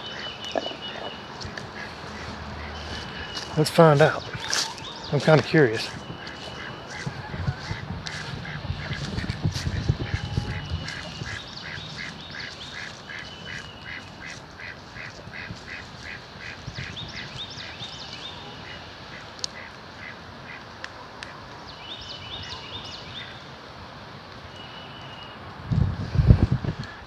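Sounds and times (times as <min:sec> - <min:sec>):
small birds chirping: 0:00.0 - 0:19.7
ducks quacking: 0:00.0 - 0:21.4.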